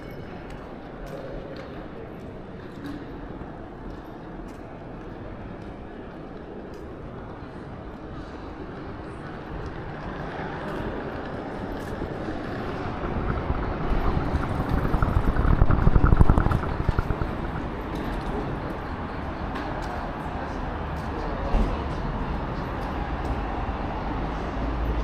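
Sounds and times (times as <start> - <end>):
road vehicle passing: 8.8 - 20.9.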